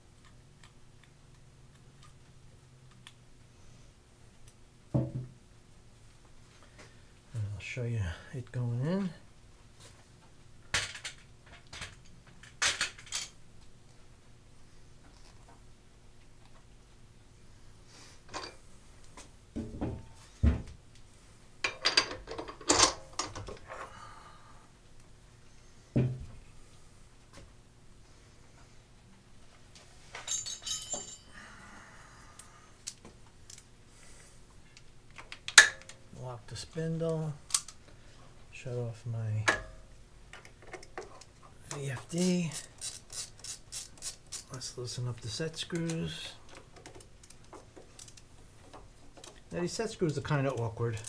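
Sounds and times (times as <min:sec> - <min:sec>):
low steady hum: 0:00.0 - 0:51.0
metal tools clinking: 0:30.1 - 0:31.4.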